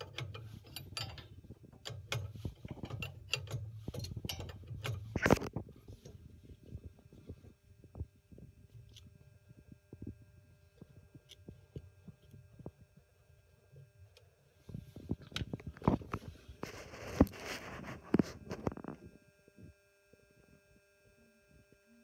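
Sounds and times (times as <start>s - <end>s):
scrape against microphone: 15.8s - 19.1s.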